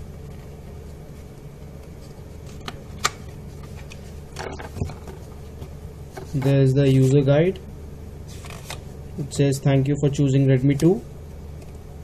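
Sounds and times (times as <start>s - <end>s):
steady low hum: 0.0s - 12.0s
paper rustling: 8.3s - 8.8s.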